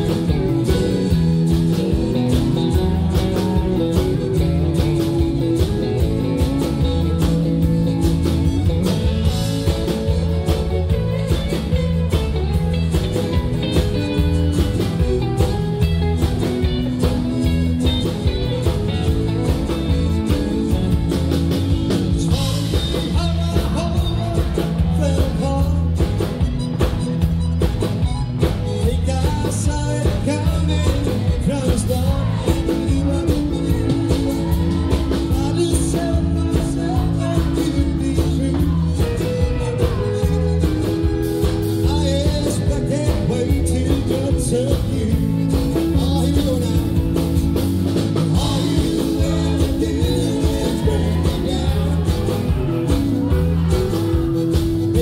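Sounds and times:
country-rock band playing: 0.0 - 55.0
lead vocal singing: 16.6 - 26.0, 28.8 - 55.0.

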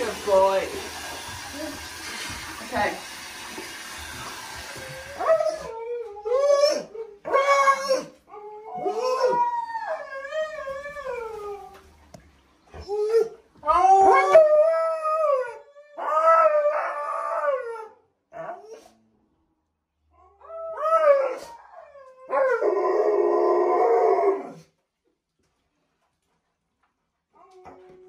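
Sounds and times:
dog howling: 4.7 - 11.7, 12.8 - 18.8, 20.2 - 24.6.

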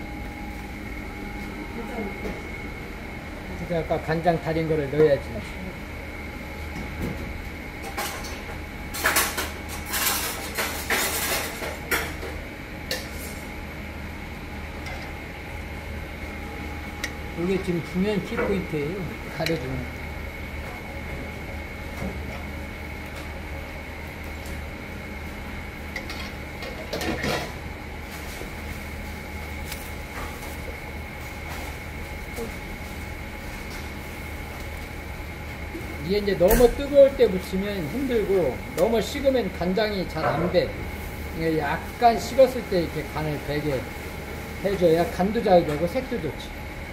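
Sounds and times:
steady kitchen hum: 0.0 - 46.9.

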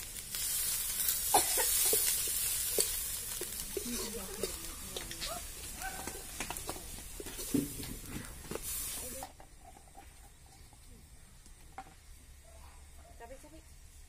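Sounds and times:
food sizzling in a wok: 0.0 - 14.0
ladle scraping a wok: 0.3 - 10.7.

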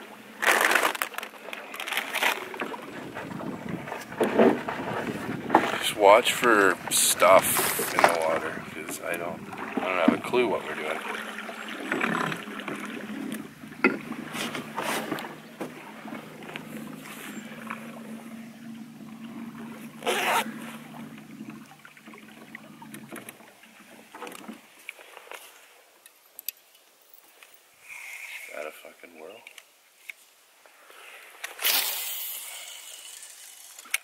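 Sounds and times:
boat motor humming: 2.4 - 24.5
knocks against boat: 11.9 - 17.7.

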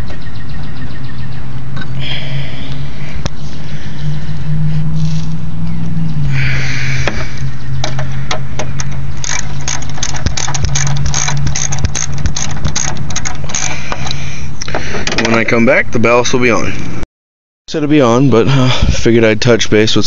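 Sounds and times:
steady low hum: 0.0 - 17.0
ratchet wrench clicking: 7.8 - 14.2.

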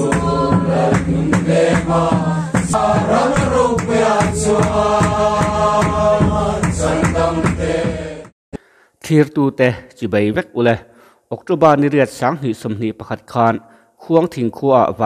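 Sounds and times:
steady percussion beat: 0.0 - 8.3
group of people singing: 0.0 - 8.4.

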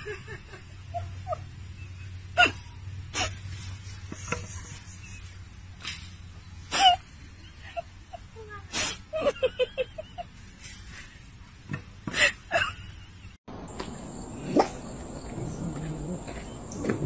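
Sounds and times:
dog barking: 14.0 - 17.0.

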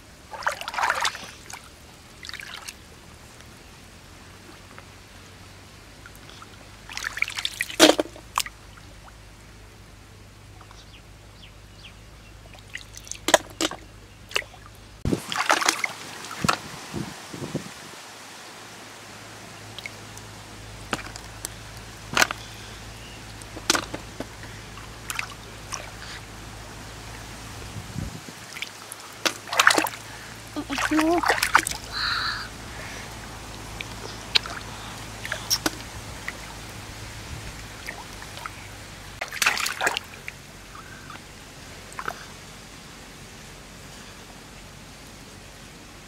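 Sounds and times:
water dripping: 0.0 - 3.6, 4.4 - 9.2, 12.4 - 16.7, 19.2 - 27.5, 28.4 - 42.3
muddy water sloshing and splashing: 0.0 - 9.5, 12.0 - 45.6.

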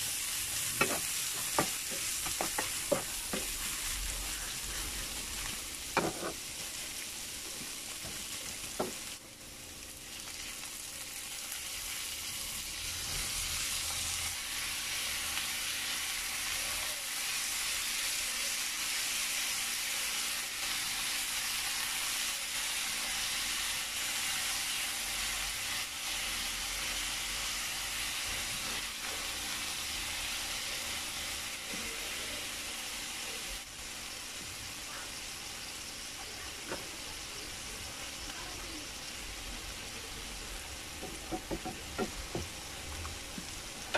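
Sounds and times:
food sizzling in a wok: 0.0 - 43.9
wooden spatula knocking pan: 0.8 - 3.6, 41.0 - 42.5.

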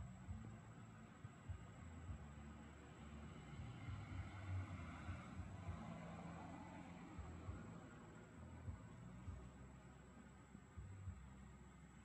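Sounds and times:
faint low rumble and hiss: 0.0 - 12.0.

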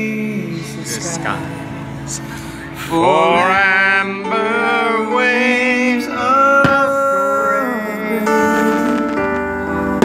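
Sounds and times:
song with person singing: 2.7 - 9.6
firework bang: 6.6 - 7.1.

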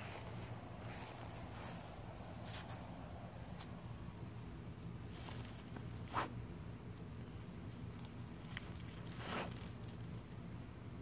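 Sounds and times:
dog sniffing in grass: 6.0 - 6.4, 9.0 - 9.8.

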